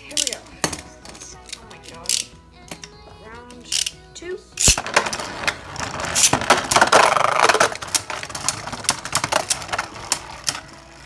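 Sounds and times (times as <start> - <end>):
spinning tops clacking together: 4.6 - 10.9.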